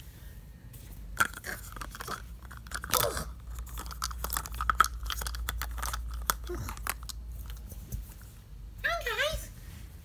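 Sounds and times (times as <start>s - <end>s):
plastic wrapper crinkling: 1.2s - 7.7s.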